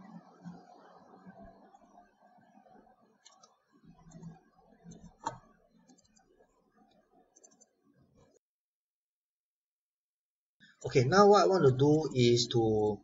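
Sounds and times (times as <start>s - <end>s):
low room noise: 0.0s - 8.4s, 10.6s - 13.0s
faint computer mouse clicks: 3.2s - 6.3s, 6.9s - 8.4s.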